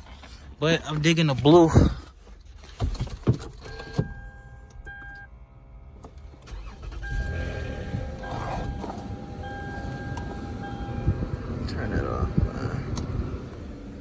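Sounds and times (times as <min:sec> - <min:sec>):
car engine starting and idling: 0:00.0 - 0:14.0
warning chime beeping: 0:06.8 - 0:11.1.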